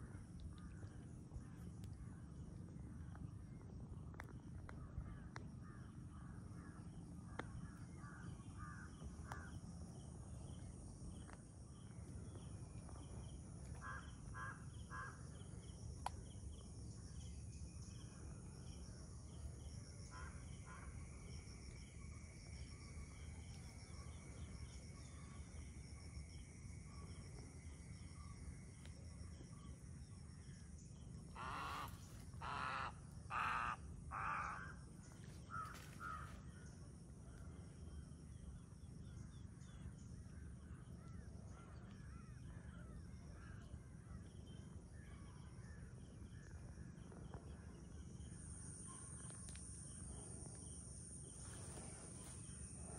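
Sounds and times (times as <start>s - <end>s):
crows cawing: 13.8s - 15.2s, 31.3s - 34.8s, 35.5s - 36.3s.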